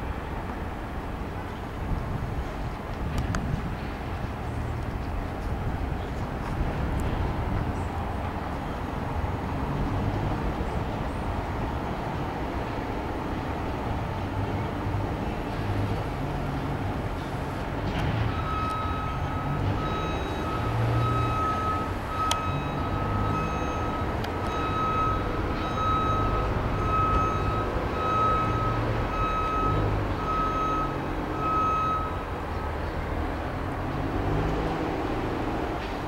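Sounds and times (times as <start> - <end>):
diesel locomotive rumble: 0.0 - 36.0
high beeps: 18.3 - 32.2.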